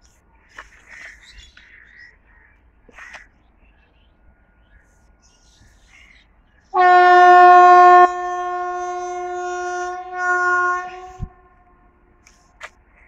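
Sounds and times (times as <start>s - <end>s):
train horn blast: 6.8s - 12.1s.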